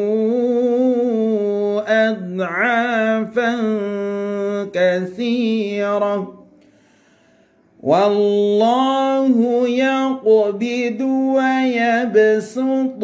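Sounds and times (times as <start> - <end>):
man chanting melodically: 0.0 - 6.5, 7.8 - 13.0.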